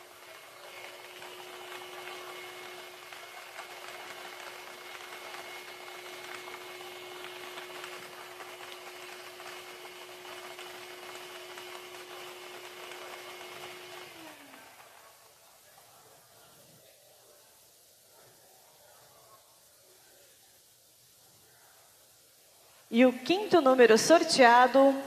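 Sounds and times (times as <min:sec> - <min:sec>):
blower humming: 0:00.0 - 0:18.0.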